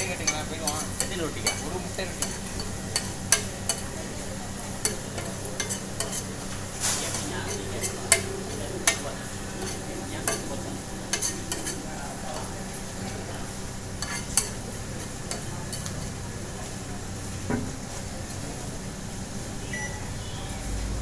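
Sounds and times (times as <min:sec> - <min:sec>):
bread sizzling on griddle: 0:00.0 - 0:09.8
metal spatula scraping griddle: 0:04.8 - 0:12.5, 0:14.0 - 0:15.4.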